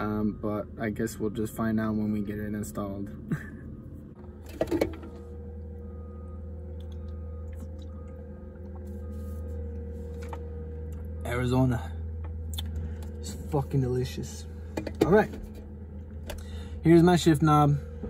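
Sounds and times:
faint even whine: 0:00.0 - 0:18.0
low mechanical hum: 0:00.0 - 0:18.0.

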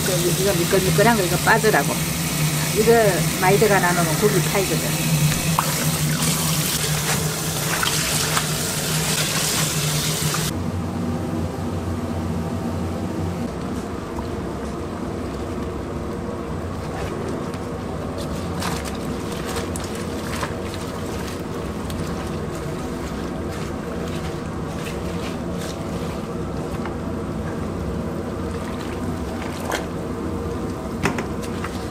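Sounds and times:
tap water pouring: 0:00.2 - 0:10.5.

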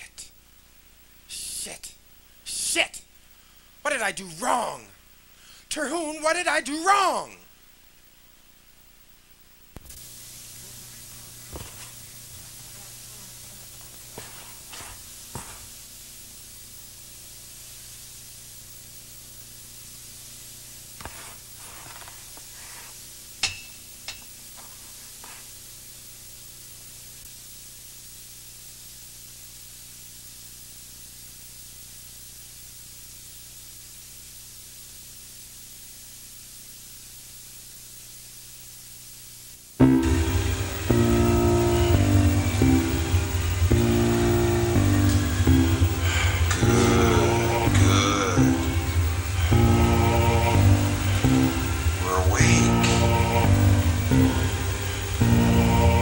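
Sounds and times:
background hiss: 0:00.0 - 0:56.0
low hum: 0:39.8 - 0:56.0.

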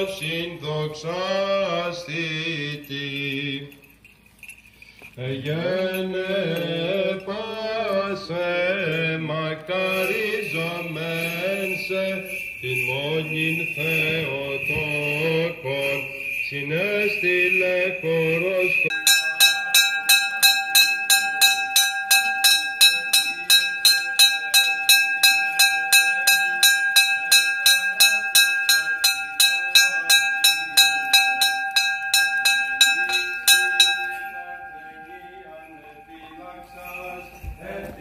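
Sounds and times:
small church bell ringing: 0:09.8 - 0:38.0.

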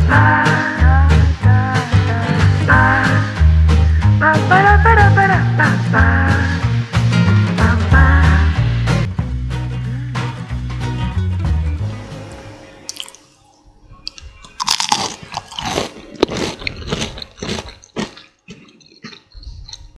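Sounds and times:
music: 0:00.0 - 0:12.9
crunchy food being chewed: 0:12.9 - 0:13.2, 0:14.1 - 0:20.0.

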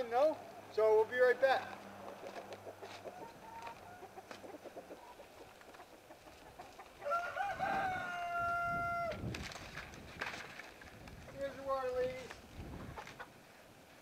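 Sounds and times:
chickens clucking: 0:02.0 - 0:08.6, 0:12.6 - 0:13.6
rooster crowing: 0:03.0 - 0:04.2, 0:07.0 - 0:09.2.

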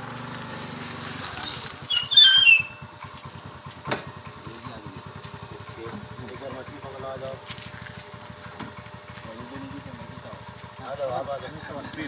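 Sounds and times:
engine puttering: 0:00.0 - 0:12.0
loud squawking cry: 0:01.4 - 0:02.8.

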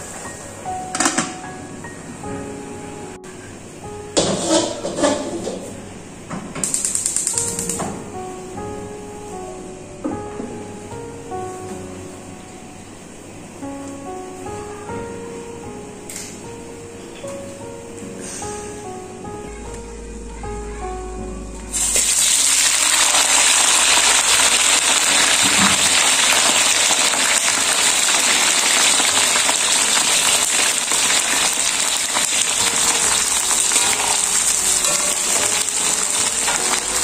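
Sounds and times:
cabbage sizzling in hot oil: 0:21.7 - 0:37.0.

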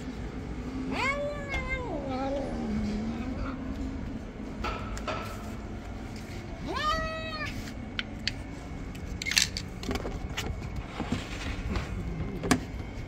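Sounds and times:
cat meowing: 0:00.9 - 0:02.7, 0:06.6 - 0:07.6.

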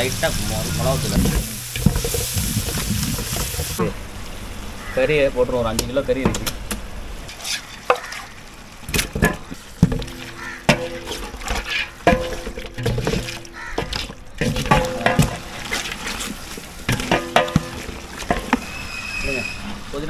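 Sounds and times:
wet stirring: 0:00.6 - 0:03.9, 0:09.0 - 0:19.8
wooden paddle knocking pot: 0:09.1 - 0:15.5, 0:16.9 - 0:18.8.

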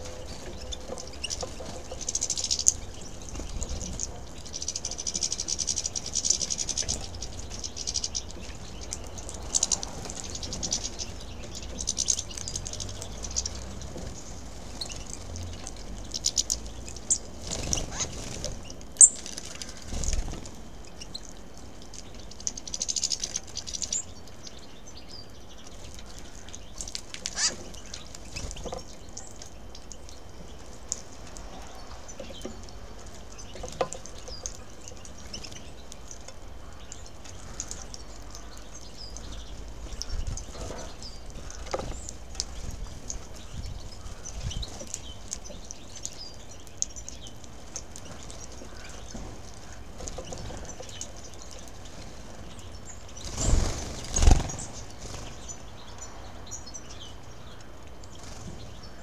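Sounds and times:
finches twittering and chirping: 0:00.0 - 0:59.0
wing flutters: 0:17.3 - 0:20.6, 0:51.8 - 0:55.6.

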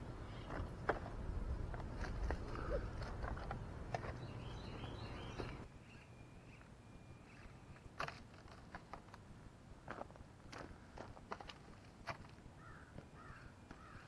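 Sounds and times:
bird chirping: 0:00.0 - 0:07.8
quiet outdoor ambience: 0:00.0 - 0:14.0.

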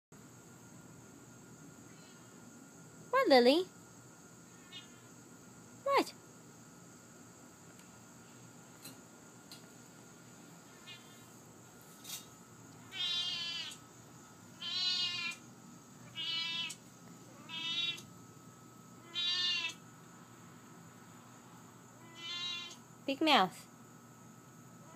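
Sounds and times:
cat meowing: 0:04.5 - 0:05.1, 0:12.9 - 0:13.8, 0:14.6 - 0:15.4, 0:16.1 - 0:16.8, 0:17.4 - 0:18.1, 0:19.0 - 0:19.8, 0:22.0 - 0:22.8.

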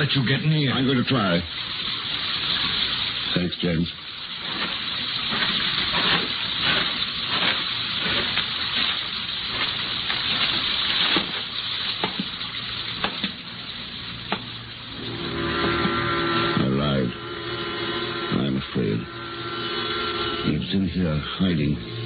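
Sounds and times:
steady rain: 0:00.0 - 0:22.0
held chord: 0:15.0 - 0:22.0.

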